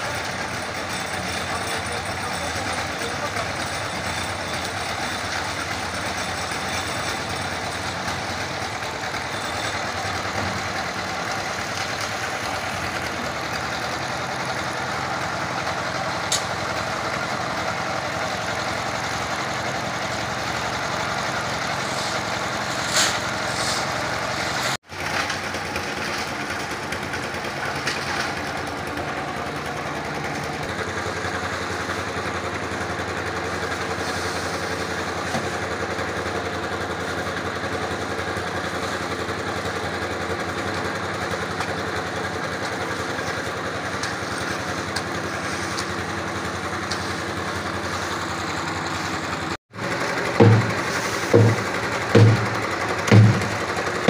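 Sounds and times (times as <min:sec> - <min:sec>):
concrete mixer running: 0:00.0 - 0:54.0
sharp knocks: 0:50.4 - 0:53.6.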